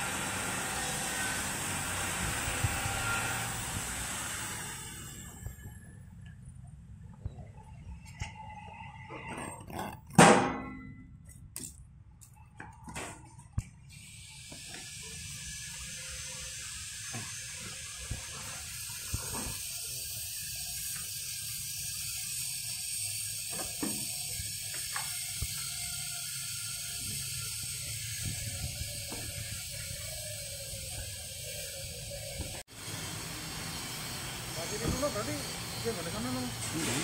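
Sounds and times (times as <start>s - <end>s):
stretch wrap film hissing: 13.9s - 32.7s.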